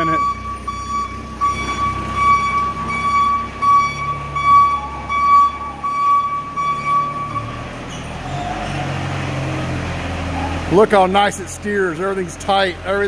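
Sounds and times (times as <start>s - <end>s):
forklift warning beeper: 0.0s - 8.7s
diesel engine running: 0.0s - 13.0s.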